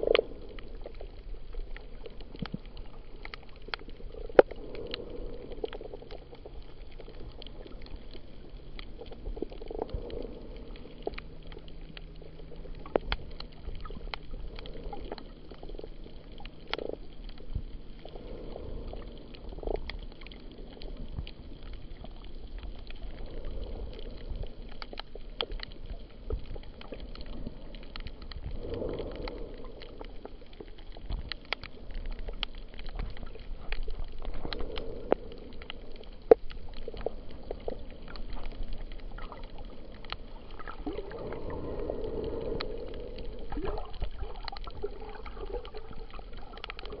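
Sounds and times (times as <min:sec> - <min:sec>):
muffled underwater wash: 0:00.0 - 0:47.0
sharp clicks and crackles: 0:00.0 - 0:47.0.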